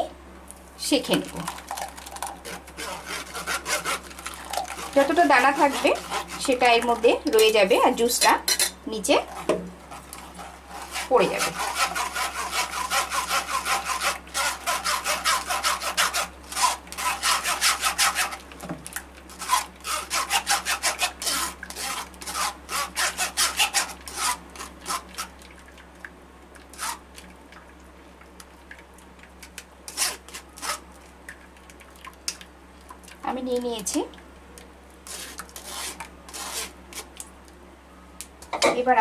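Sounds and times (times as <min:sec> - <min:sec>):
spoon scraping mesh strainer: 0:01.4 - 0:07.7, 0:08.4 - 0:18.4, 0:19.4 - 0:25.3, 0:35.1 - 0:37.1.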